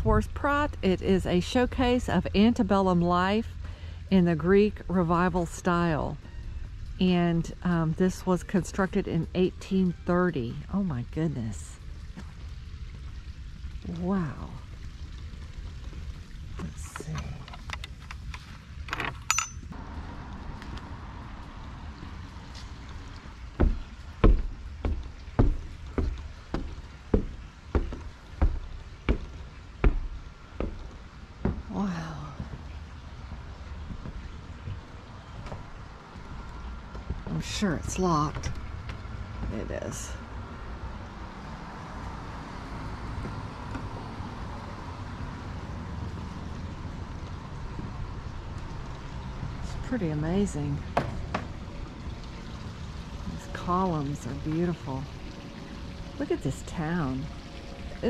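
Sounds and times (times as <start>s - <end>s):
low steady background noise: 0.0s - 58.0s
low uneven outdoor rumble: 0.0s - 58.0s
footsteps on wooden stairs: 22.5s - 37.5s.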